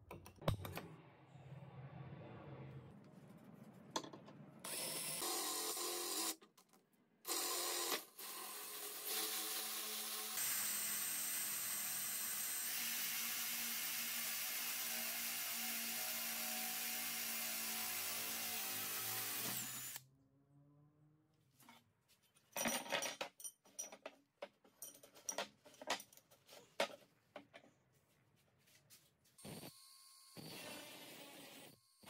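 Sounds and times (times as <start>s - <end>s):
drill grinding through metal: 4.7s - 6.4s, 7.3s - 20.0s, 29.4s - 32.0s.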